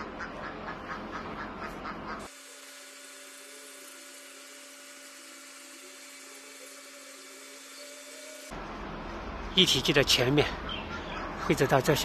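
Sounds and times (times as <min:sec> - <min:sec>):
machine drive whine with hiss: 0:02.1 - 0:08.6.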